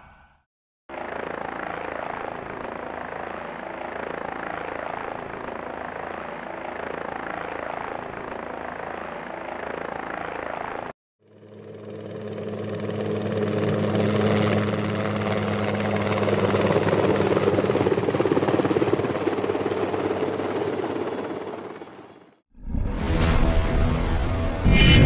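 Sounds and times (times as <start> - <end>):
helicopter rotor beat: 0.9 - 22.4.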